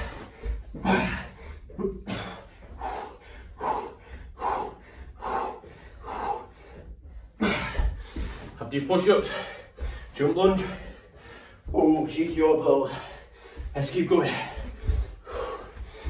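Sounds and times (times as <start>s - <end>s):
man breathing hard: 0.0s - 16.0s.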